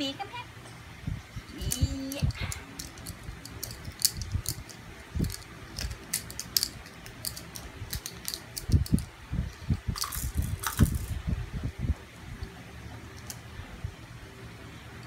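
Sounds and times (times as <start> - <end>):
plastic toys clicking and rattling: 1.5 - 11.2, 13.1 - 13.4.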